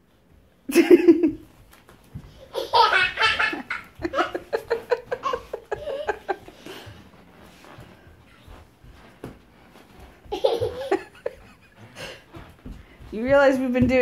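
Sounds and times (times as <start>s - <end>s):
small child laughing: 2.4s - 6.5s, 10.3s - 11.6s.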